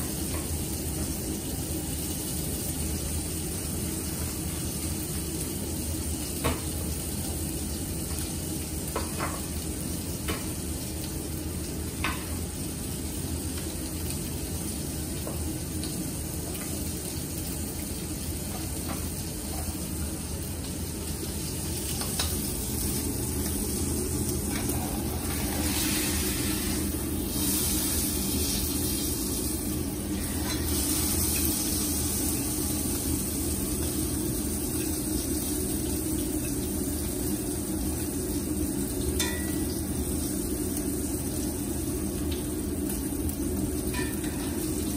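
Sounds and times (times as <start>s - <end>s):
steak sizzling in frying pan: 0.0s - 44.9s
steady low hum: 20.0s - 44.9s.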